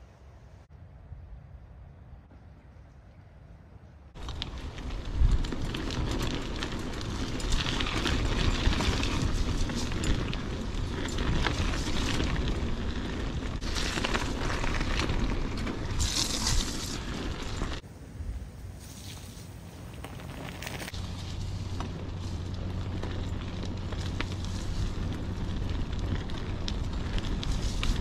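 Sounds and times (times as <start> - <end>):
wind buffeting microphone: 4.1 - 18.6, 20.9 - 28.0
bicycle clattering and rattling: 4.2 - 17.8, 20.0 - 28.0.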